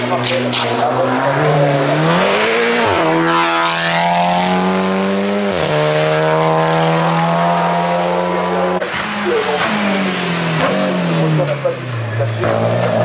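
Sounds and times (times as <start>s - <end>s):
race car engine at high revs: 0.0s - 13.0s.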